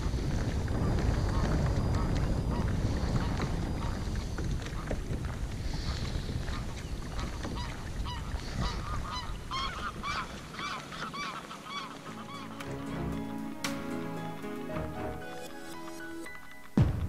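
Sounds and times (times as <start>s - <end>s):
wind on microphone: 0.0s - 12.5s
geese honking: 5.7s - 16.4s
music: 11.8s - 17.0s.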